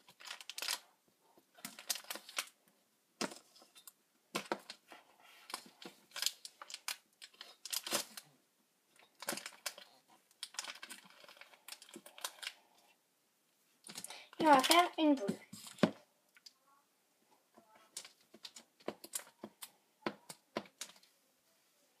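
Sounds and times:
plastic wrapper crinkling: 0.0s - 0.9s, 1.5s - 2.6s, 3.3s - 8.3s, 8.9s - 12.8s, 13.8s - 16.6s, 17.8s - 21.1s.

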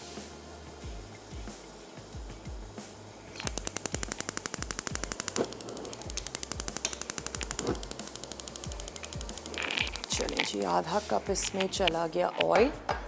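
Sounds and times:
soft background music: 0.0s - 13.0s
spark igniter clicking rapidly: 3.3s - 12.6s.

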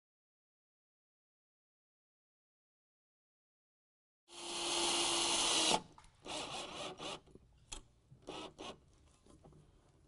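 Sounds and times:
cordless drill driving screw: 4.4s - 7.3s, 8.2s - 8.8s.

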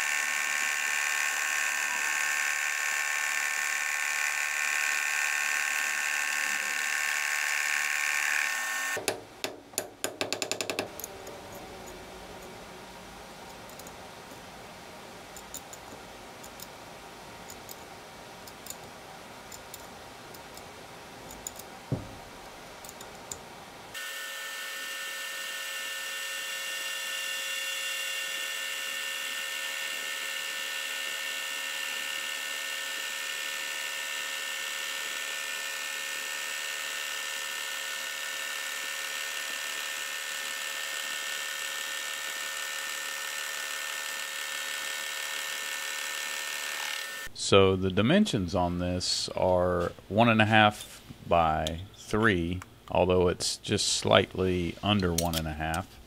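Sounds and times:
lathe whining while cutting: 0.0s - 9.0s, 24.0s - 47.3s
chuck key clicking and knocking: 9.0s - 11.1s.

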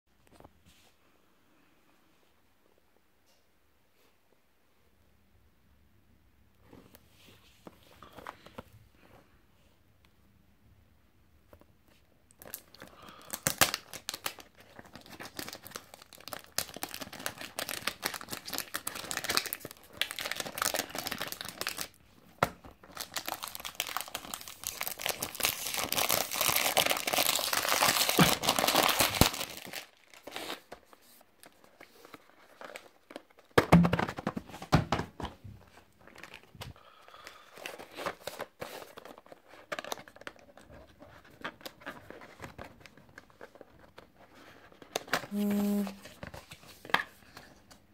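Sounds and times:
plastic wrapping crinkling: 12.3s - 22.0s, 22.8s - 33.6s.

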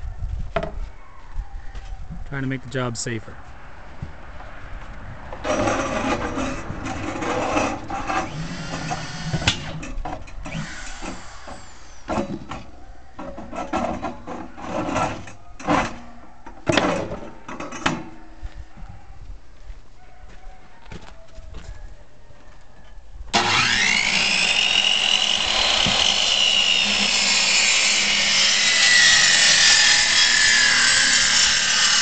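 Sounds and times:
power saw cutting wood: 5.4s - 12.7s, 23.3s - 32.0s.

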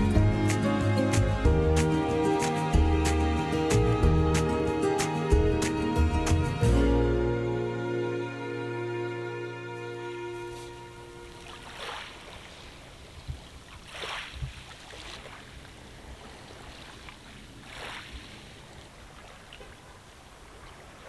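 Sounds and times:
faint water background: 0.0s - 21.0s
small waves on pebble beach: 11.2s - 21.0s.

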